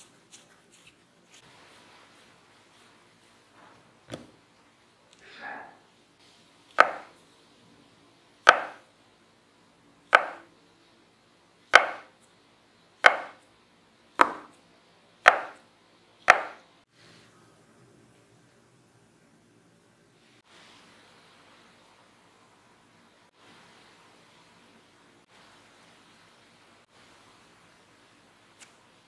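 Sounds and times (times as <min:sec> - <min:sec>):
soft brushing: 0:00.0 - 0:03.8
knife chopping onto silicone mat: 0:06.8 - 0:07.1, 0:08.5 - 0:08.8, 0:10.1 - 0:10.4, 0:11.8 - 0:12.1, 0:13.0 - 0:13.4, 0:14.2 - 0:14.6, 0:15.3 - 0:15.6, 0:16.3 - 0:16.6.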